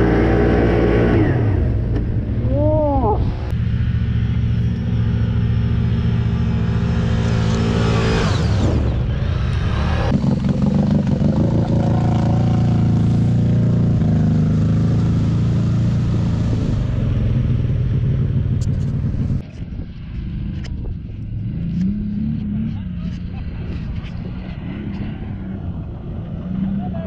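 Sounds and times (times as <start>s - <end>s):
quad bike engine running: 10.0s - 25.1s.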